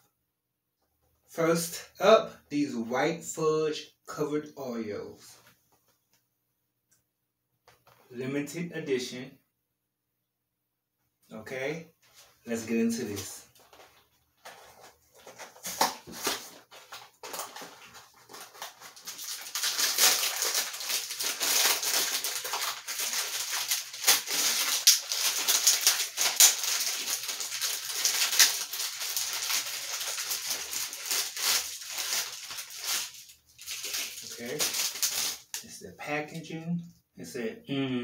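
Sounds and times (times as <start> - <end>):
plastic wrapper crinkling: 13.2 - 35.6.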